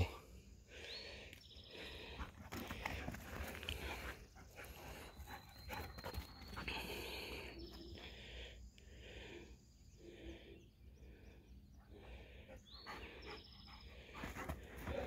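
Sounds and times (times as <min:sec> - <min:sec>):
puppies panting softly: 0:02.5 - 0:08.3, 0:11.7 - 0:15.0.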